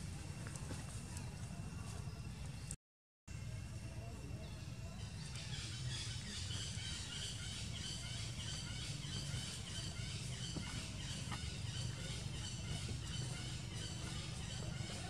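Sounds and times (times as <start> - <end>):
bird chirps: 4.4 - 15.0
steady low rumble: 6.0 - 15.0.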